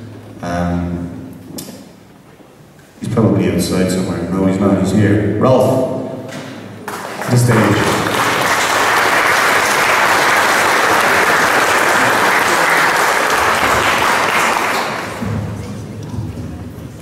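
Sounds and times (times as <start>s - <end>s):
audience applauding: 6.8s - 15.3s.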